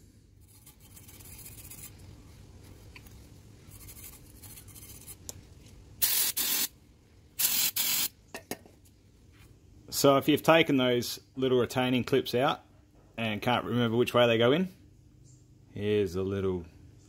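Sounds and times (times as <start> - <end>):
aerosol spray hissing bursts: 6.0 - 6.7, 7.4 - 8.1.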